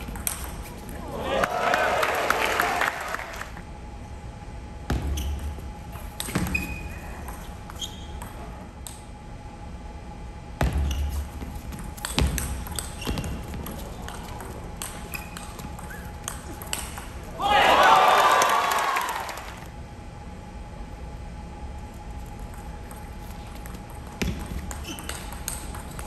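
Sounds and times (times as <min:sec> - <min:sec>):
shoes squeaking on floor: 0:05.0 - 0:05.6, 0:06.2 - 0:08.2, 0:12.7 - 0:14.1, 0:15.0 - 0:16.3, 0:24.6 - 0:25.4.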